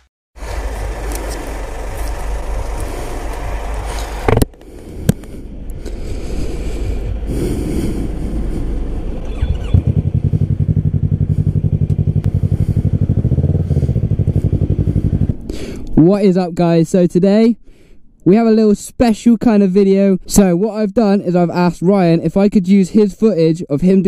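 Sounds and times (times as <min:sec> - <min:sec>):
motorcycle engine idling: 0:00.4 - 0:15.8.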